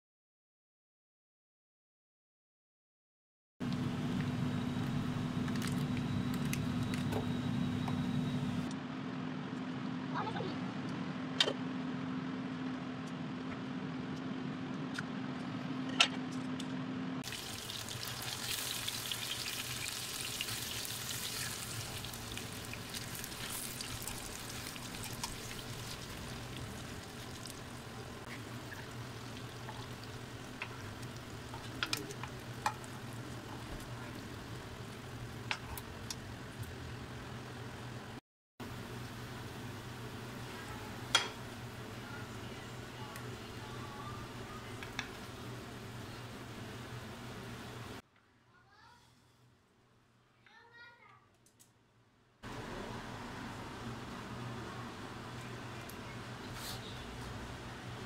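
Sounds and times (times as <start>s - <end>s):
food sizzling in a pan: 17.2s - 36.0s.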